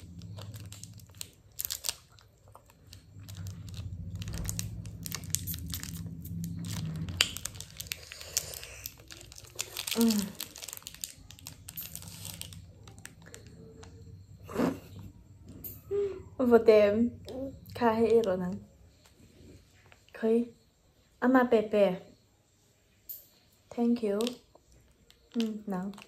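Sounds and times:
plastic wrapper crinkling and tearing: 0:00.0 - 0:13.9, 0:25.0 - 0:26.0.

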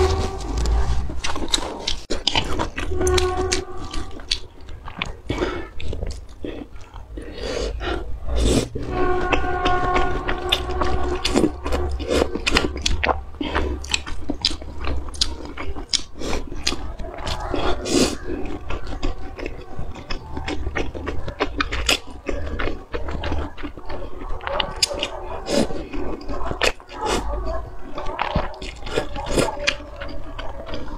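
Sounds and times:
low steady hum: 0:00.0 - 0:17.2
slurping noodles: 0:00.0 - 0:29.8
chewing with wet smacks: 0:00.0 - 0:30.9.

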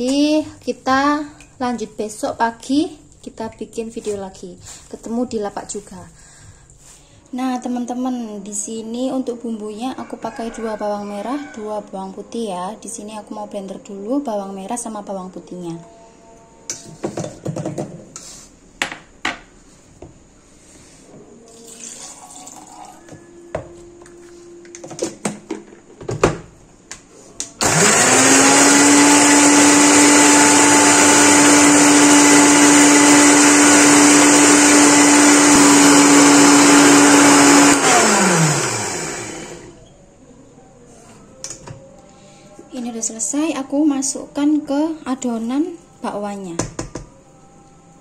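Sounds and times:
blender motor grinding: 0:27.6 - 0:39.8.

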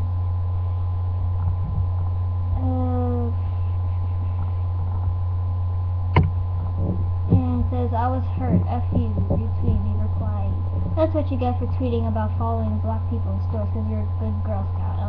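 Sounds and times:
electrical mains hum: 0:00.0 - 0:15.0
sharp click: 0:06.1 - 0:06.4.

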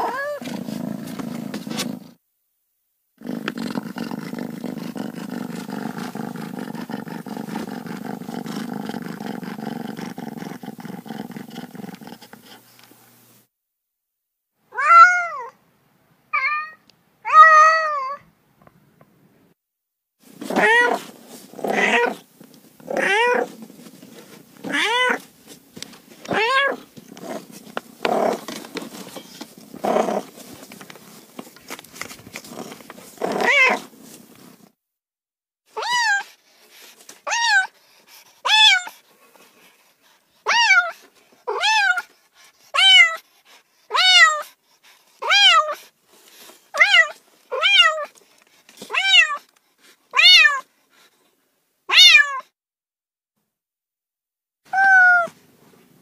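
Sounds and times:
cats meowing: 0:00.0 - 0:00.4, 0:14.8 - 0:15.5, 0:16.4 - 0:18.2, 0:20.5 - 0:21.0, 0:23.0 - 0:23.5, 0:24.7 - 0:25.2, 0:26.3 - 0:26.9, 0:33.3 - 0:33.8, 0:40.5 - 0:40.9, 0:41.5 - 0:42.1, 0:42.8 - 0:43.2, 0:43.9 - 0:44.4, 0:45.2 - 0:45.8, 0:46.8 - 0:48.1, 0:48.9 - 0:49.5, 0:50.2 - 0:50.7, 0:51.9 - 0:52.4, 0:54.7 - 0:55.4.

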